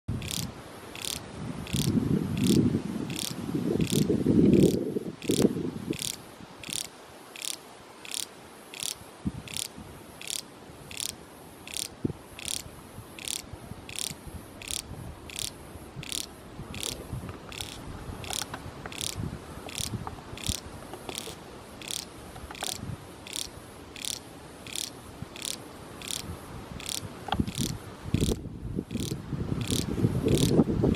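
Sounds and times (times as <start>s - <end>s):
cicada buzzing pulses: 0.1s - 30.9s.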